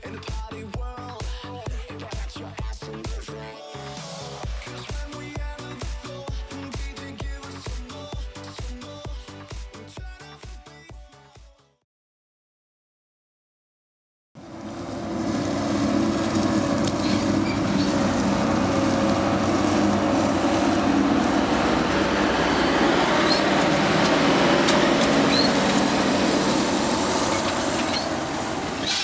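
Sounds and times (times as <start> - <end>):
combine harvester droning: 14.4 - 29.0.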